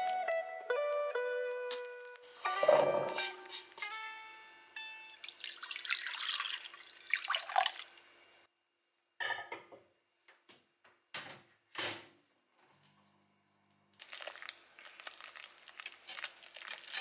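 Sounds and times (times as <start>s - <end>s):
milk pouring into a bowl: 5.2s - 8.1s.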